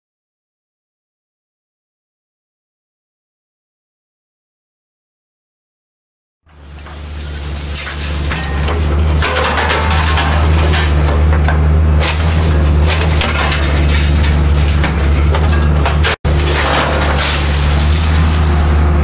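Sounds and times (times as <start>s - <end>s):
diesel engine running: 6.5s - 19.0s
scrap metal clanking and scraping: 6.5s - 19.0s.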